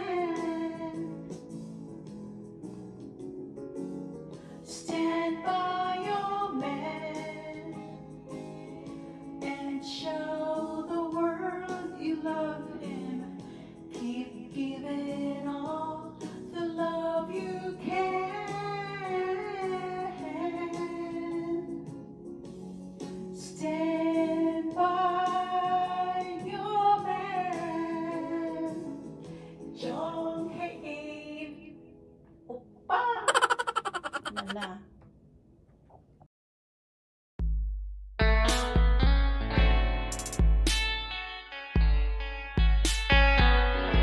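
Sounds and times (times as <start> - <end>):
woman singing a slow ballad: 0.0 - 1.4, 4.6 - 22.0, 23.4 - 31.8
backing track music: 0.0 - 10.8, 38.2 - 44.0.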